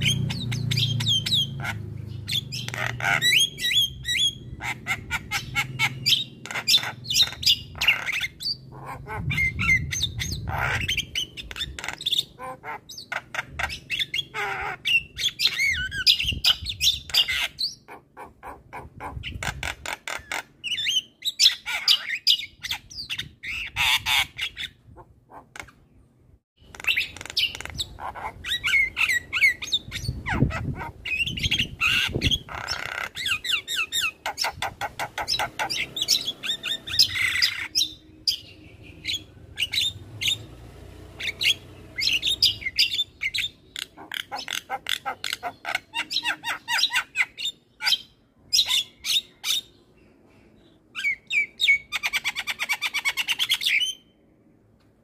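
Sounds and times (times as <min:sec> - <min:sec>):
bird song chirps and whistles: 0:00.0 - 0:12.4, 0:13.0 - 0:17.9, 0:26.7 - 0:40.5, 0:41.2 - 0:43.7, 0:51.0 - 0:54.1.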